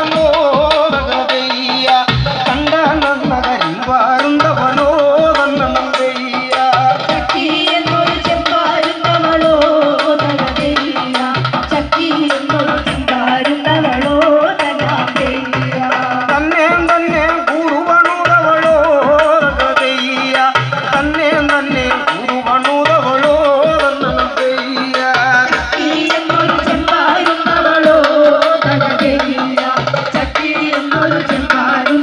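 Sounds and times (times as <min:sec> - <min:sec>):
drum beating steady rhythm: 0:00.0 - 0:32.0
person singing melody: 0:00.0 - 0:32.0.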